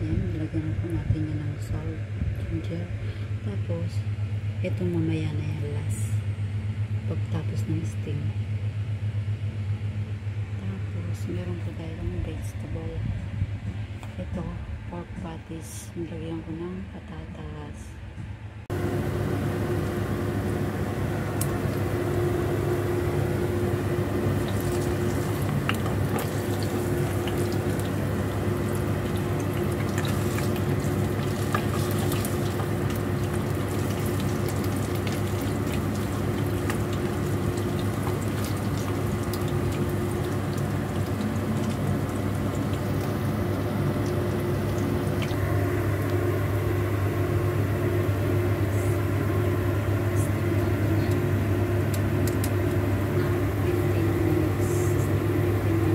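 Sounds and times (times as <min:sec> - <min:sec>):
low hum: 0:00.0 - 0:55.9
patties sizzling in oil: 0:19.1 - 0:45.4.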